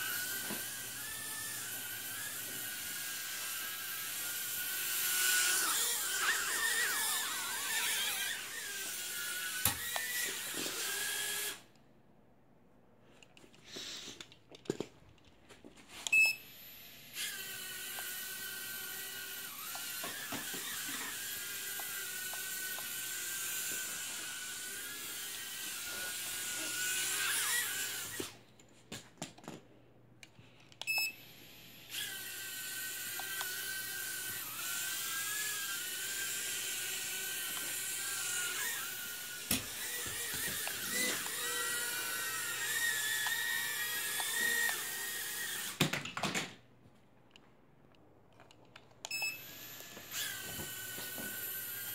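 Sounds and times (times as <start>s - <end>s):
toy drone propellers whining: 0.0s - 11.7s, 16.1s - 28.4s, 30.9s - 45.8s, 49.1s - 51.9s.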